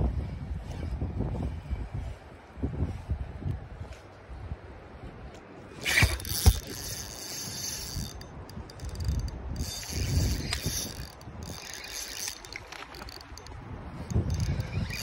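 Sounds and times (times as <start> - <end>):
fishing reel whirring: 5.7 - 15.0
fishing reel click: 5.8 - 15.0.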